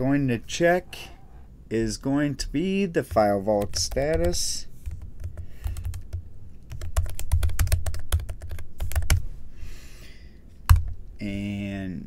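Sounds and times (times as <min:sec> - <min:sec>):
typing on computer keyboard: 0:03.1 - 0:09.2.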